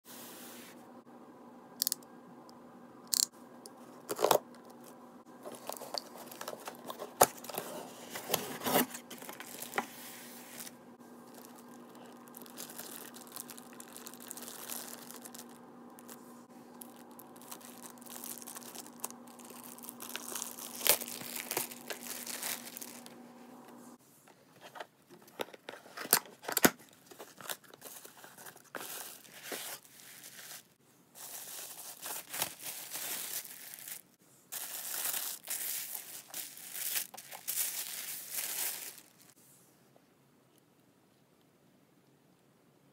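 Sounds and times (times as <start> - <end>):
plastic wrap tearing and crinkling: 5.4 - 23.2, 26.1 - 39.4.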